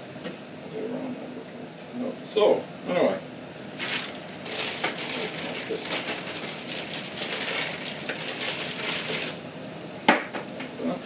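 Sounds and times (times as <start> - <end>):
plastic bag crinkling: 3.8 - 9.4.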